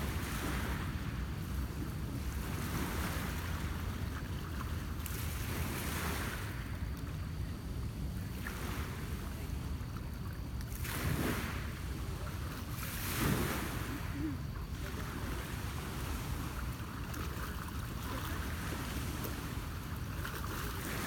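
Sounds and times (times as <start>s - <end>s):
wind rumble on microphone: 0.0s - 21.0s
waves washing against rocky shore: 10.7s - 21.0s.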